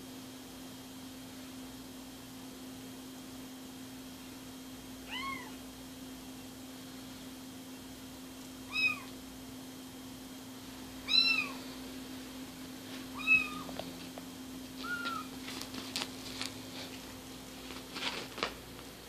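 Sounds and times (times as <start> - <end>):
kitten mewing: 5.1 - 5.6, 8.7 - 9.2, 11.0 - 11.7, 13.2 - 13.8, 14.8 - 15.4
claws catching on blanket: 14.8 - 16.9.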